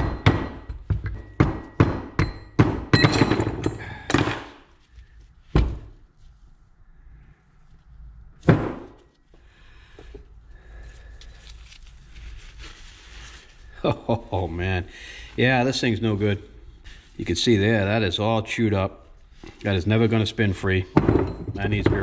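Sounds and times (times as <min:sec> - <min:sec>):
quiet handling of parts: 0:03.2 - 0:13.8.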